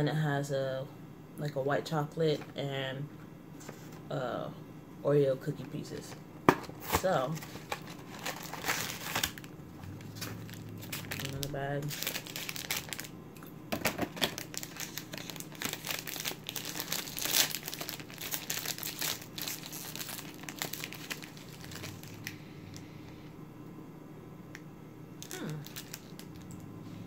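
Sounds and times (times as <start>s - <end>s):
plastic wrapper crackling: 6.8s - 13.1s, 13.8s - 22.4s, 25.2s - 26.4s.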